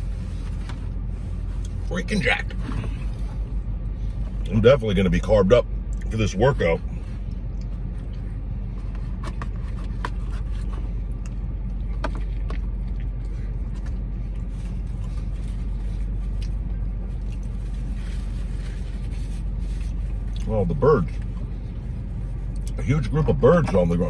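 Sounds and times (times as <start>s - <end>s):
car idling hum: 0.0s - 24.0s
food handling rustles: 11.8s - 20.4s.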